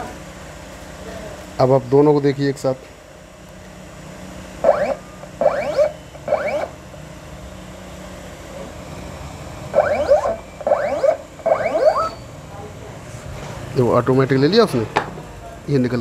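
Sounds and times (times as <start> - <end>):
cutting plotter motors whining: 4.6 - 6.8, 9.6 - 12.3.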